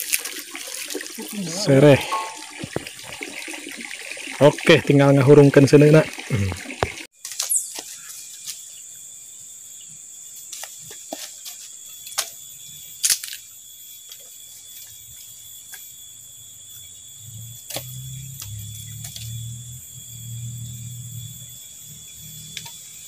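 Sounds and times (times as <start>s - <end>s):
high insect drone: 0.0s - 23.0s
low hum: 1.4s - 3.6s, 15.1s - 23.0s.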